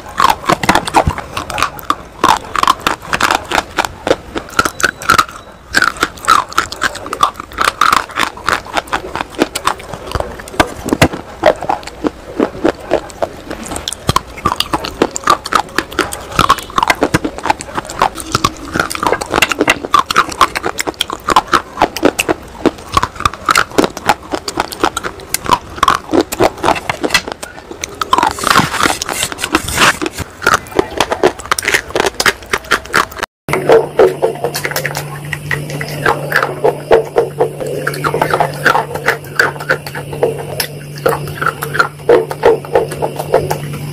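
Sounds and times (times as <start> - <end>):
crunching and chewing brittle sticks: 0.0 - 43.9.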